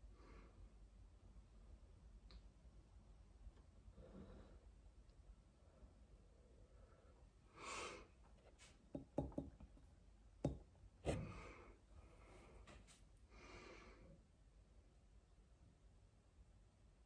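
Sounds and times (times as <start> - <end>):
hand knocking on camera: 8.9 - 9.6.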